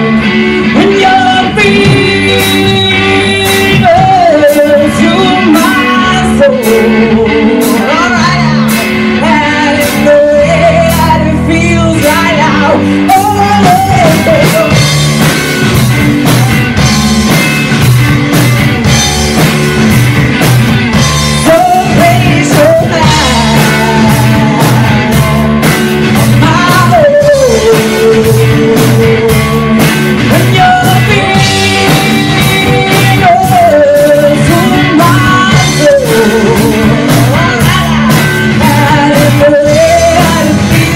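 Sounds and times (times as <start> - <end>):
woman singing lead: 0.0 - 17.9, 18.6 - 40.9
live rock band playing: 0.0 - 40.9
drum beat: 13.6 - 40.9.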